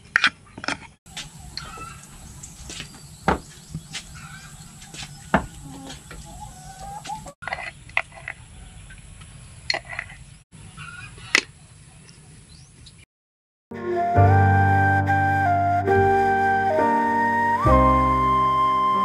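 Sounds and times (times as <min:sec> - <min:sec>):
chickens clucking: 0:00.5 - 0:08.9.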